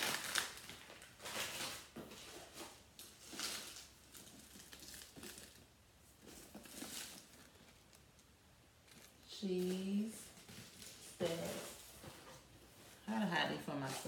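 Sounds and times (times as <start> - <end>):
packaging and wrappers crinkling: 0.0 - 12.2.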